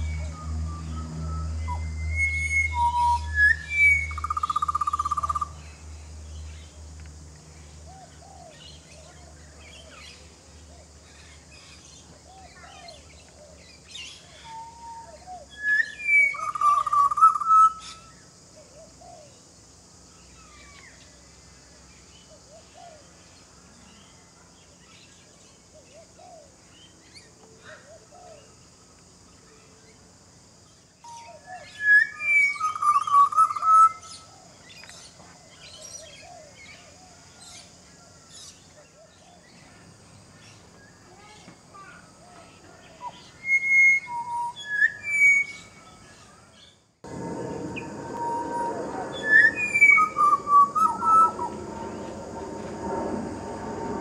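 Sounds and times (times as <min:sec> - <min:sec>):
bird singing fluted phrases: 0:00.0 - 0:05.6, 0:14.0 - 0:18.1, 0:47.7 - 0:51.6.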